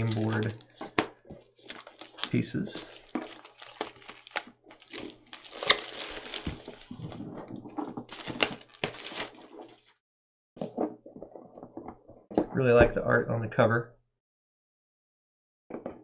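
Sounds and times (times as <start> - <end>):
rustling of box handled: 0.0 - 9.9
shrink wrap crinkling: 0.0 - 10.0.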